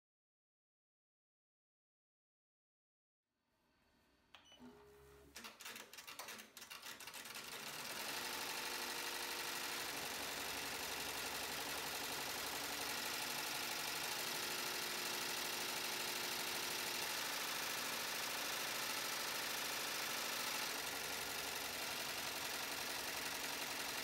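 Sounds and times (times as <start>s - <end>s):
embroidery machine stitching: 4.4s - 24.0s
machine clicks: 5.3s - 7.9s.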